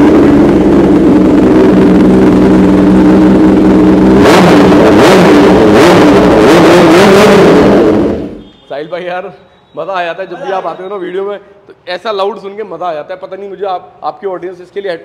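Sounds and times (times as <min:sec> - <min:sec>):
motorcycle engine idling and revving: 0:00.0 - 0:08.6.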